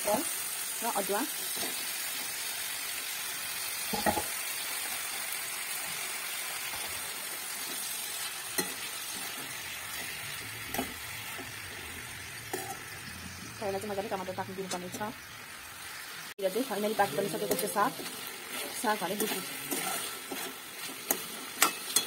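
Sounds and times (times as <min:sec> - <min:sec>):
greens sizzling in oil: 0:00.0 - 0:22.0
steel spoon clinking on pan: 0:21.0 - 0:22.0.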